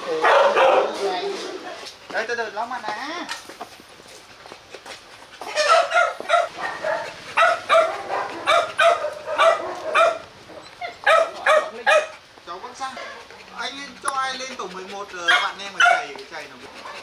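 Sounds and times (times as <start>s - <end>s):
dog barking: 0.2s - 1.0s, 5.6s - 12.2s, 15.3s - 16.2s.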